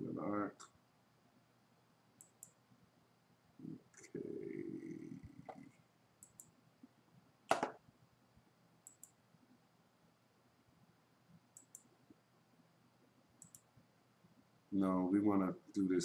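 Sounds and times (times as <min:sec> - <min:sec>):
computer mouse clicks: 0:02.2 - 0:02.6, 0:06.2 - 0:06.5, 0:08.8 - 0:09.2, 0:11.5 - 0:11.9, 0:13.4 - 0:13.7.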